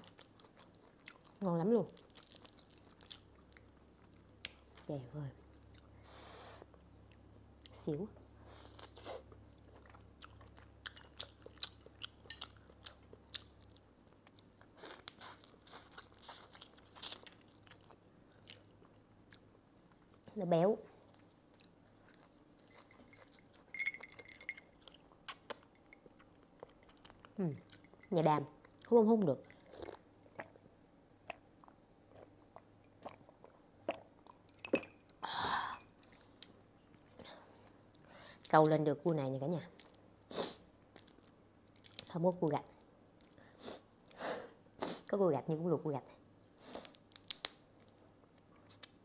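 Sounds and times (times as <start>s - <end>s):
chewing and smacking: 0.0s - 1.4s, 8.9s - 20.1s, 21.0s - 28.9s
crab shell cracking: 47.1s - 47.6s.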